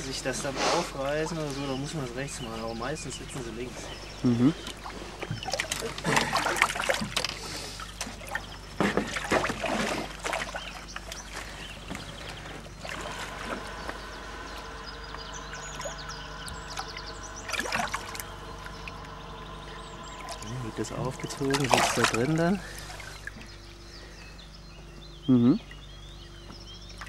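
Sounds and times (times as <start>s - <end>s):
steady hum: 0.0s - 27.0s
water splashing in a tub: 3.9s - 14.4s, 15.2s - 23.5s.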